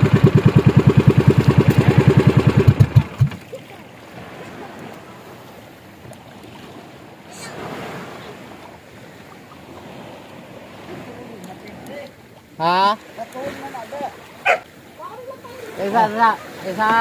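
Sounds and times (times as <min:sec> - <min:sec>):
boat engine chugging: 0:00.0 - 0:06.0, 0:13.0 - 0:16.7
faint water: 0:00.0 - 0:17.0
wind: 0:00.0 - 0:17.0.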